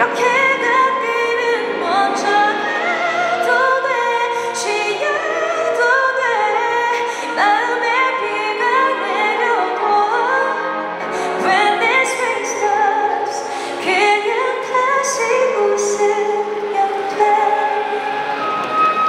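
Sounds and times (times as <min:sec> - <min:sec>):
woman singing a slow ballad: 0:00.0 - 0:18.3
string orchestra: 0:00.0 - 0:19.0.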